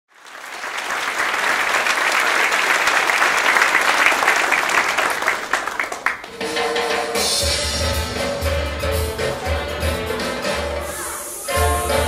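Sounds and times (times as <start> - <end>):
audience applauding: 0.1 - 6.6.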